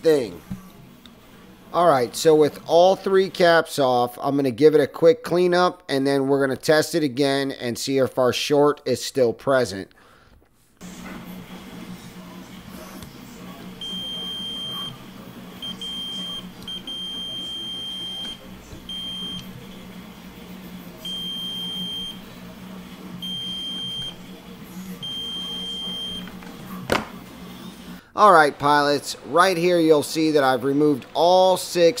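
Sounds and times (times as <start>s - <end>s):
multimeter continuity beeps: 15.6s - 19.5s, 21.0s - 22.2s, 23.2s - 24.2s, 25.0s - 26.3s.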